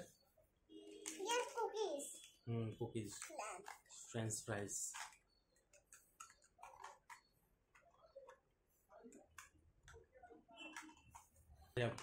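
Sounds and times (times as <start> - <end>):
plastic toy pieces clicking: 4.9 - 8.4.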